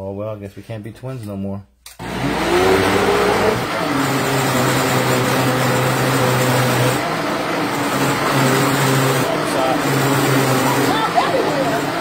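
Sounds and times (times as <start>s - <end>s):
blender motor running: 2.0s - 12.0s.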